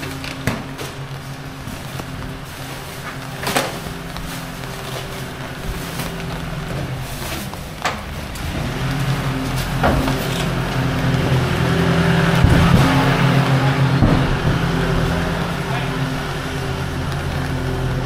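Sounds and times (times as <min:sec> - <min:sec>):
street noise: 0:00.0 - 0:18.0
vehicle engine running: 0:00.0 - 0:18.0
sharp knocks: 0:09.6 - 0:15.5.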